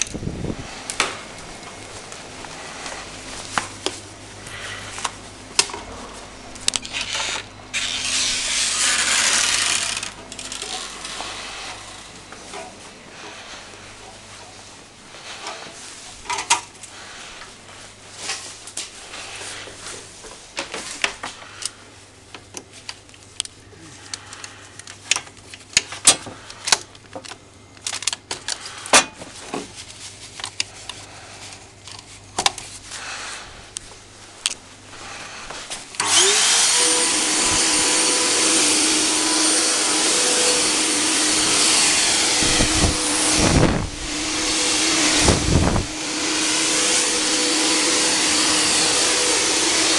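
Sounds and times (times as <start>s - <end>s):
fog generator blower rushing: 35.0s - 49.9s.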